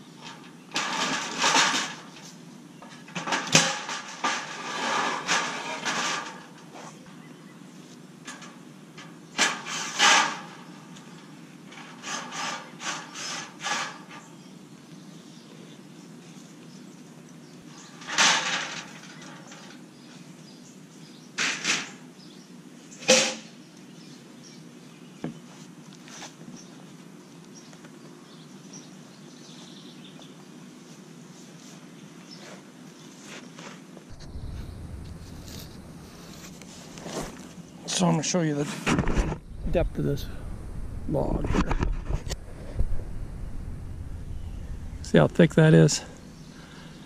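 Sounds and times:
outdoor background noise: 0.0 - 47.0
knocks and scrapes of handling wood: 0.2 - 7.0, 33.2 - 40.4, 41.2 - 43.2.

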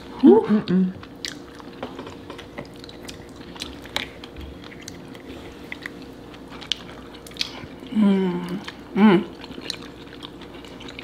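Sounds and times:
chewing and wet mouth noises: 0.0 - 11.0.

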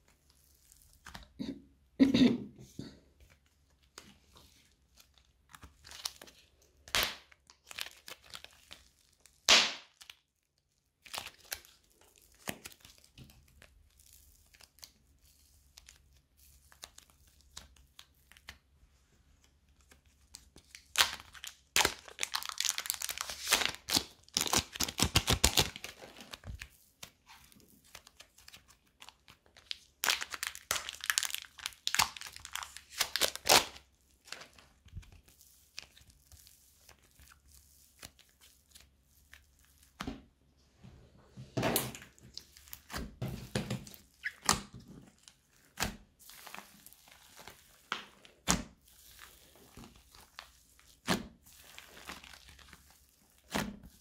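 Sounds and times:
slime crackling and tearing: 5.5 - 15.0, 20.6 - 26.5, 27.2 - 40.0, 44.1 - 54.0.

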